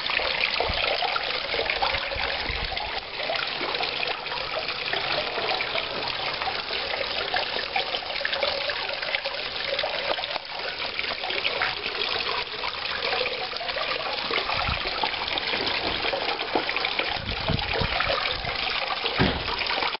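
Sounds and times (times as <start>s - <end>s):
water splashing into pond: 0.0s - 20.0s
low bumps: 19.2s - 19.7s.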